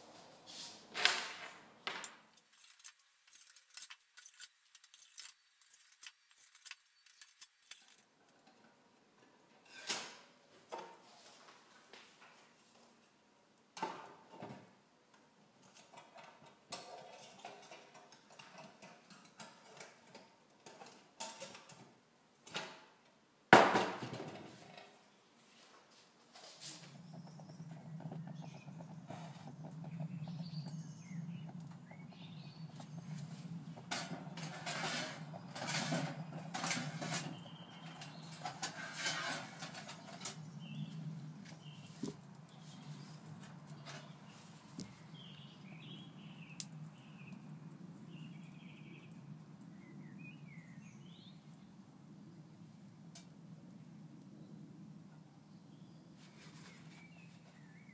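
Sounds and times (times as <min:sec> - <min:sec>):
tin cans clinking and scraping: 0:15.7 - 0:21.9, 0:32.7 - 0:40.8
steady low hum: 0:26.2 - 0:38.6.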